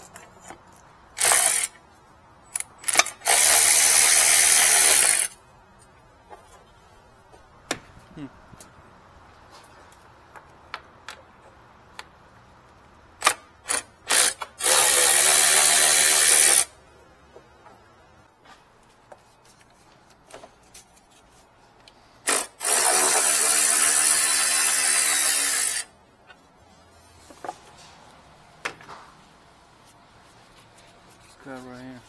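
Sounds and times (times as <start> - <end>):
power tool spinning bolts: 1.2 - 1.8, 2.5 - 5.4, 13.2 - 16.7, 22.2 - 25.9.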